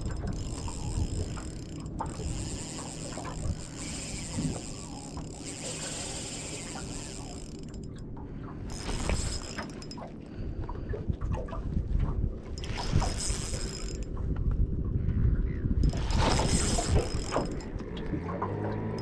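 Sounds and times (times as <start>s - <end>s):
fishing reel clicking and ratcheting: 0.0s - 8.1s, 8.7s - 10.1s, 12.5s - 14.1s, 15.8s - 17.9s
water noise: 0.0s - 15.1s, 15.7s - 19.0s
wind: 0.0s - 19.0s.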